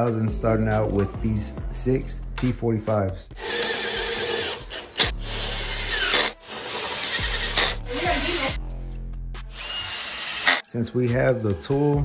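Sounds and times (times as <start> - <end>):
cordless drill driving screws: 3.4 - 8.5, 9.5 - 10.6
drill clicks: 3.4 - 8.5, 9.5 - 10.6.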